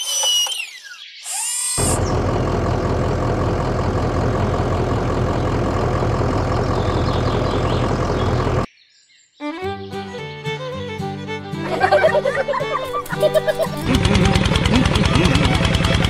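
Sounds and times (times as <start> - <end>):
excavator engine drone: 1.8 - 8.7, 11.2 - 16.0.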